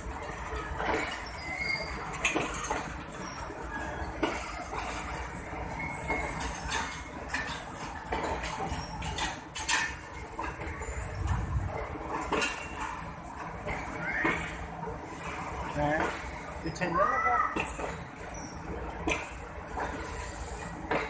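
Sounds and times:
train wheels clacking on rails: 0:00.0 - 0:15.2
low train rumble: 0:09.4 - 0:15.8.

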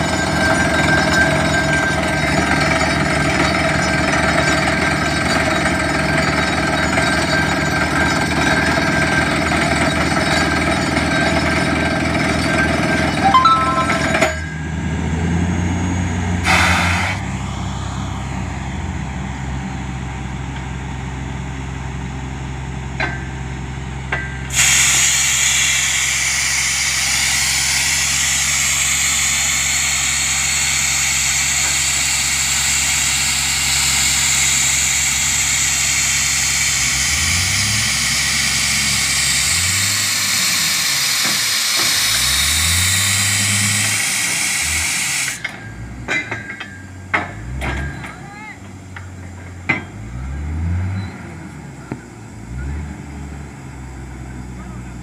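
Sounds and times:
diesel engines running: 0:00.0 - 0:55.0
compressed air blasting: 0:24.5 - 0:45.4.

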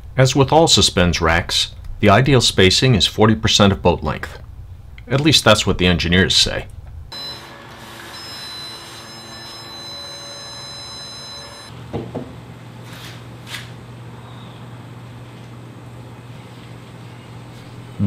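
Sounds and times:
stud finder high beep: 0:07.1 - 0:11.7
soft knock: 0:11.9 - 0:12.3.

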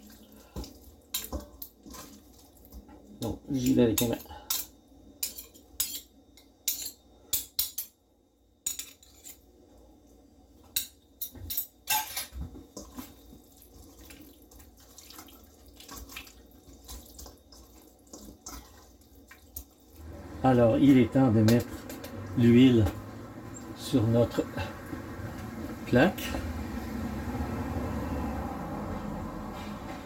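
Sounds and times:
wet squelching of marinade: 0:00.0 - 0:03.8, 0:12.8 - 0:20.0.

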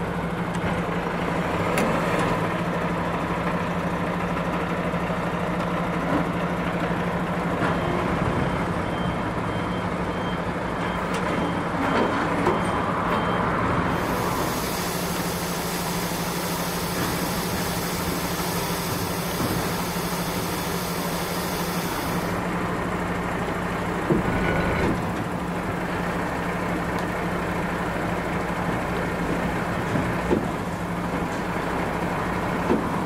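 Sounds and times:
diesel engine idling: 0:13.9 - 0:33.0
air hiss: 0:14.0 - 0:22.4.

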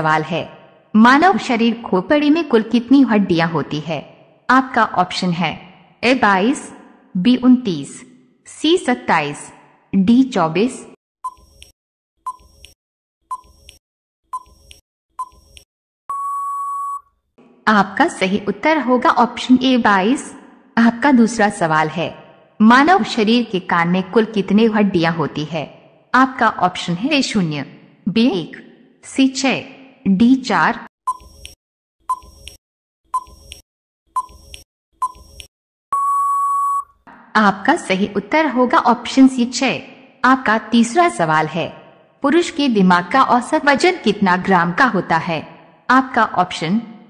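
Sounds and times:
short beeping ticks: 0:12.3 - 0:15.4, 0:33.1 - 0:33.6, 0:34.2 - 0:36.9
long steady beep: 0:16.1 - 0:17.1, 0:35.9 - 0:37.0
short beeps: 0:16.1 - 0:17.1, 0:35.9 - 0:37.0.

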